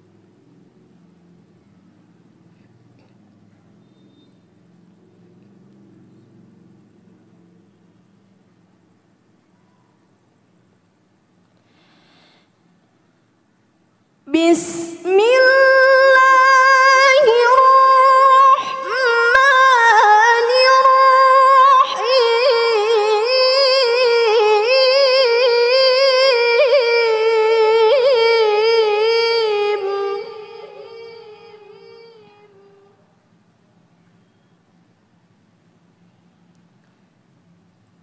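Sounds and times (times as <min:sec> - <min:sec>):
woman reciting melodically: 0:14.2 - 0:33.1.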